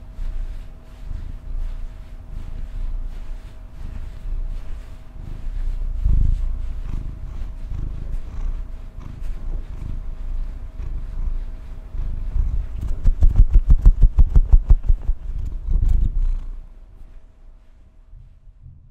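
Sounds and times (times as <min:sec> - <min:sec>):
cat purring: 0:00.0 - 0:18.9
low thumps: 0:12.2 - 0:16.3.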